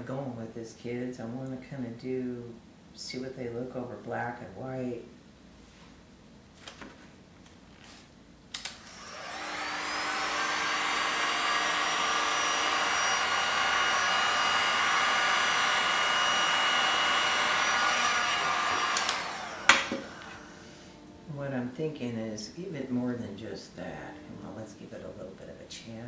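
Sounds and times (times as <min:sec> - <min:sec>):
heat gun blowing with whine: 0:08.8 - 0:21.0
heat gun switch click: 0:18.8 - 0:20.0.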